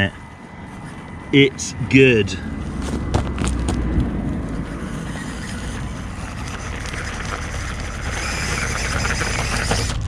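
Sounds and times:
stones clicking: 2.9 - 4.1
rc car electric motor and gears: 4.3 - 10.0.

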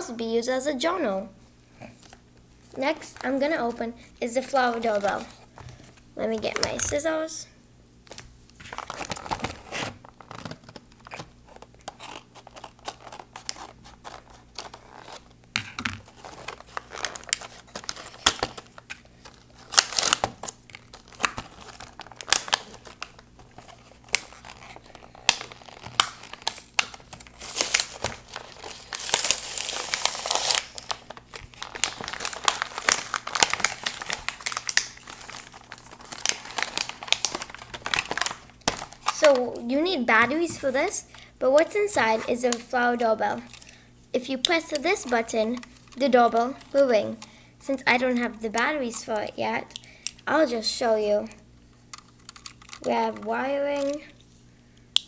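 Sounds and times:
packaging crinkling and tearing: 4.6 - 7.0, 8.0 - 41.3, 44.4 - 47.3, 51.8 - 54.3.

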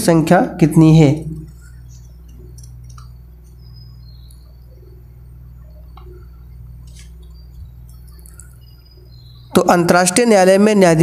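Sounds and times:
low hum: 0.0 - 10.7
faint ticks: 5.9 - 8.8.

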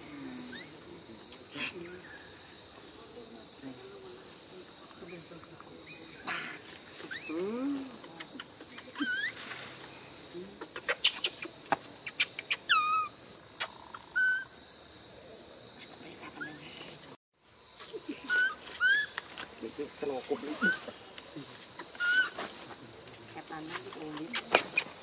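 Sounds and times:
high insect buzz: 0.0 - 25.0.

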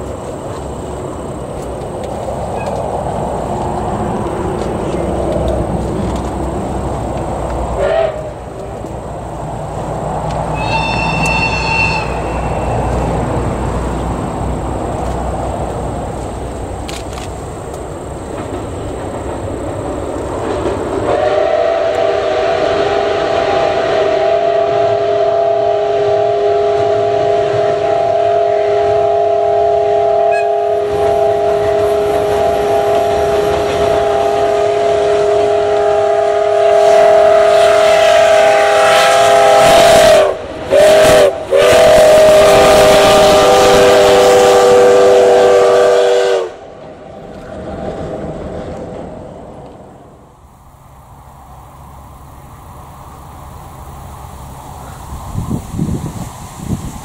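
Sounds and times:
train rumbling across steel bridge: 0.0 - 57.0
steam locomotive chime whistle: 7.8 - 8.4, 10.5 - 13.1, 21.0 - 46.6.

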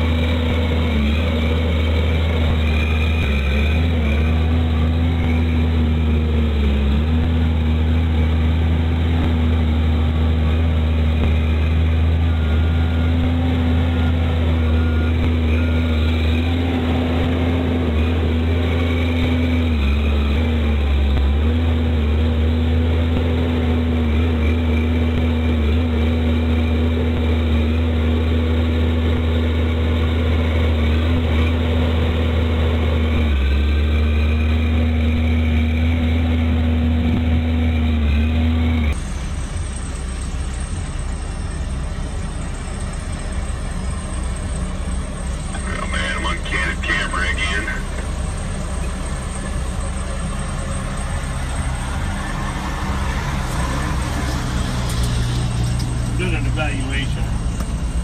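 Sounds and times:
heavy diesel engine drone: 0.0 - 58.0.

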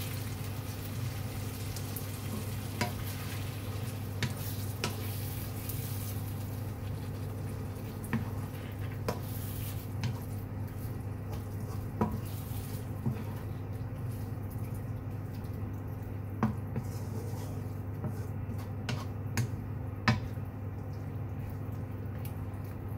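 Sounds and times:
food sizzling: 0.0 - 15.6
steady low hum: 0.0 - 22.9.

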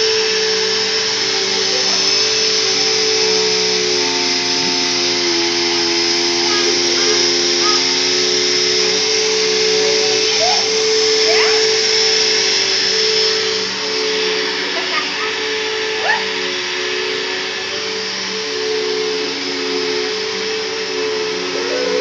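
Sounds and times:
vacuum cleaner running on carpet: 0.0 - 22.0.

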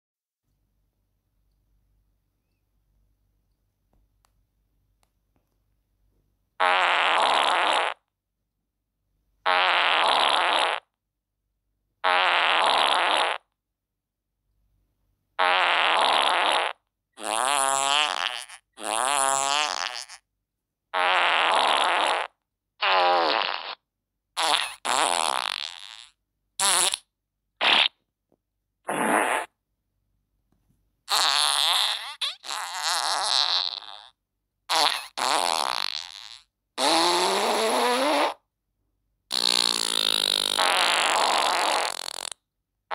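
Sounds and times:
farts: 6.6 - 8.1, 9.5 - 11.0, 12.0 - 13.5, 15.4 - 20.2, 21.0 - 23.8, 24.4 - 28.0, 28.8 - 29.6, 31.1 - 38.5, 39.3 - 42.4.

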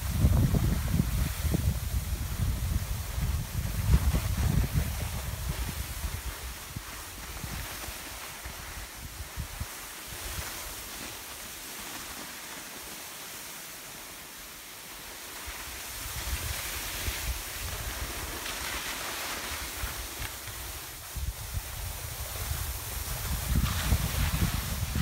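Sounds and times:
wind buffeting microphone: 0.0 - 7.7, 19.8 - 25.0
skis hissing over snow: 0.0 - 25.0.

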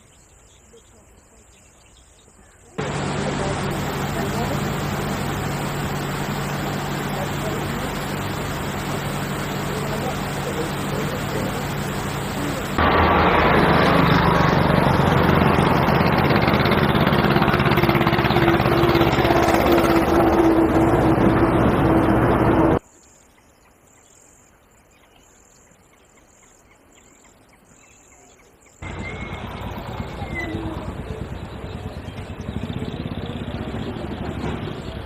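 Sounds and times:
faint hiss: 0.0 - 13.7
engine running with low hum: 2.8 - 22.8, 28.8 - 35.0.

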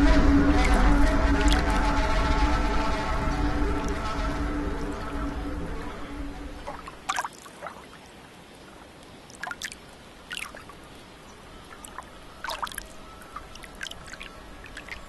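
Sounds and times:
music: 0.0 - 6.7
faint steady hiss: 0.0 - 15.0
water drips plinking: 6.7 - 7.9, 9.3 - 10.7, 11.6 - 15.0.

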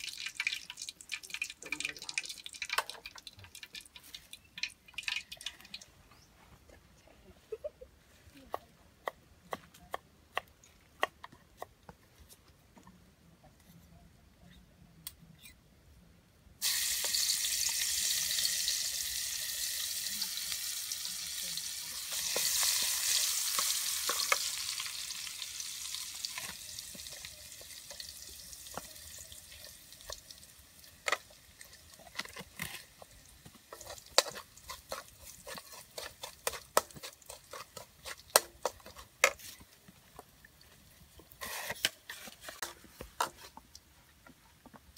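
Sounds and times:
hot oil sizzling in wok: 0.0 - 5.7, 16.6 - 39.4
metal ladle scraping wok: 33.7 - 39.6, 41.3 - 43.6.

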